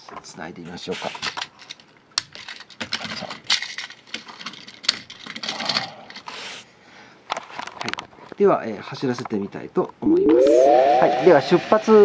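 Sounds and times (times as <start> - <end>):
toy train wagons clicking and clattering: 0.7 - 6.5.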